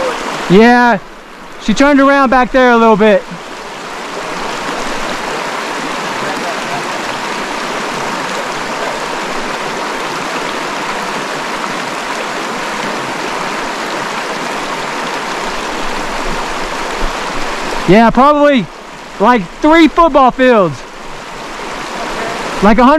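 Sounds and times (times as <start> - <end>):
stream rushing over rocks: 0.0 - 22.9.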